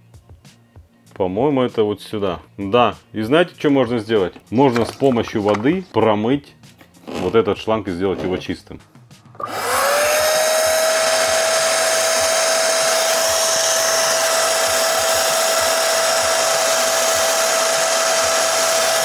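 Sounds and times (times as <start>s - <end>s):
carpet extractor motor whine: 9.4s - 19.0s.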